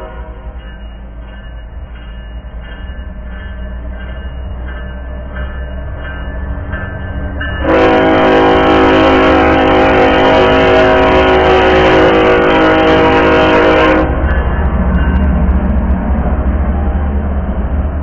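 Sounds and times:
locomotive air horn blast: 0:07.6 - 0:14.2
engine and wheels rumbling: 0:11.1 - 0:18.0.

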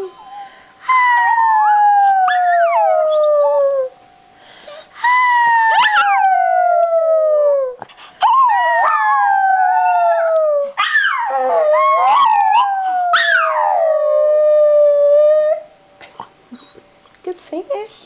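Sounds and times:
dog howling and yelping: 0:00.0 - 0:04.0, 0:04.8 - 0:15.7
woman howling: 0:05.0 - 0:15.6.

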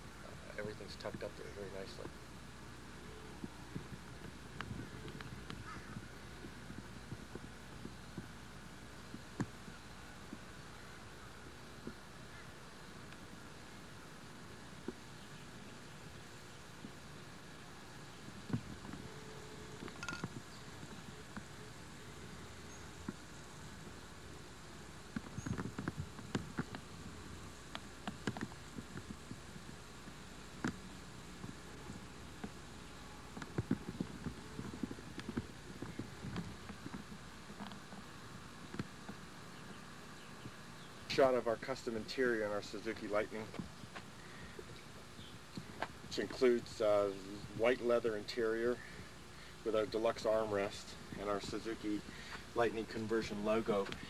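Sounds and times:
faint low hum: 0:00.0 - 0:54.0
steady hiss: 0:00.0 - 0:54.0
irregular clicks and taps: 0:27.7 - 0:29.4.

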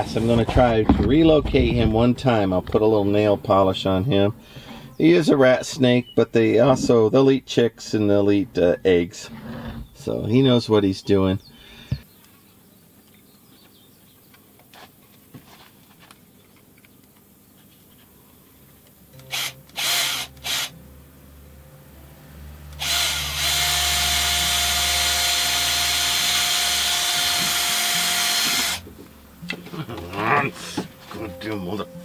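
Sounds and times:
power tool running: 0:19.2 - 0:20.8, 0:22.7 - 0:28.9.

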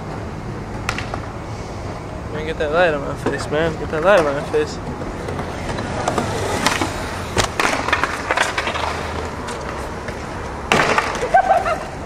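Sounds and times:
skateboard wheels rolling on concrete: 0:00.0 - 0:12.0
skateboard clacking on ground: 0:00.8 - 0:01.3, 0:03.1 - 0:11.9.

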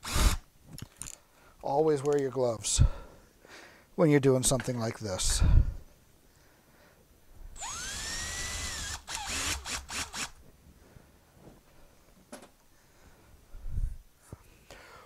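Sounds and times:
cordless drill whining: 0:00.0 - 0:00.4, 0:07.6 - 0:10.4.

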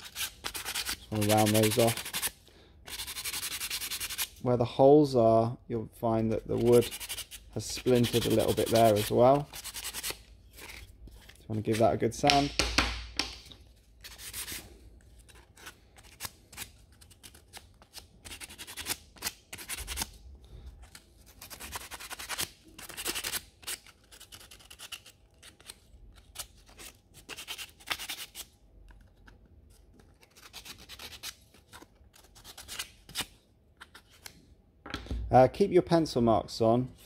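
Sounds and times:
sandpaper rubbing wood: 0:00.0 - 0:02.3, 0:02.9 - 0:04.4, 0:06.5 - 0:10.2.

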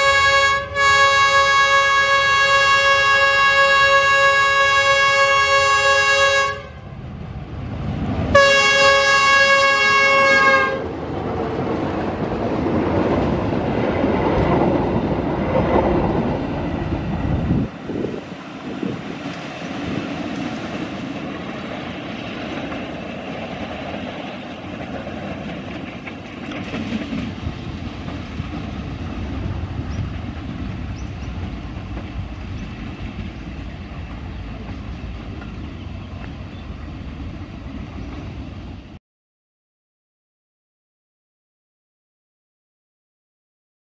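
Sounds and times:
train wheels on rails: 0:06.8 - 0:39.0.

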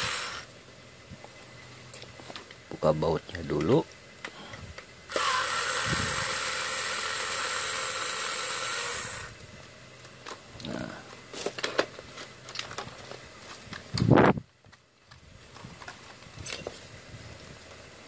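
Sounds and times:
electric screwdriver running: 0:00.0 - 0:00.5, 0:05.1 - 0:09.4.

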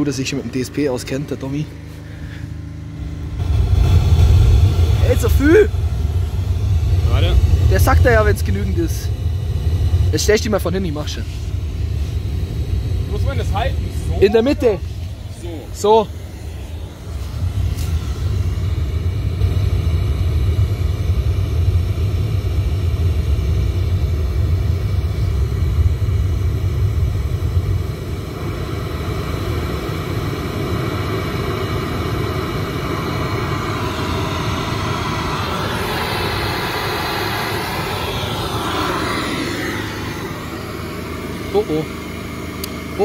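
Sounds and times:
deep rumble: 0:00.0 - 0:43.0
diesel generator droning: 0:00.0 - 0:43.0
engine rising and falling in pitch: 0:00.0 - 0:43.0.

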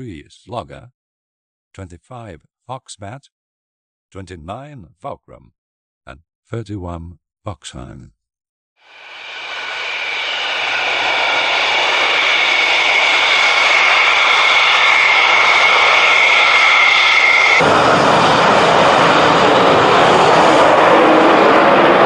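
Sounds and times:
fighter jet engine roar: 0:08.8 - 0:22.0
high turbine whine: 0:08.8 - 0:22.0
jet taking off: 0:08.8 - 0:22.0.

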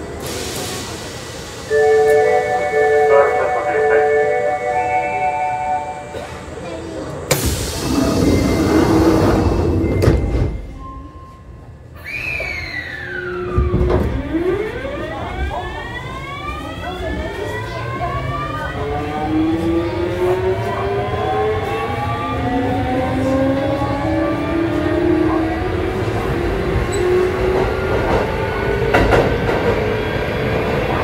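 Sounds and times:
train running noise: 0:13.1 - 0:31.0.

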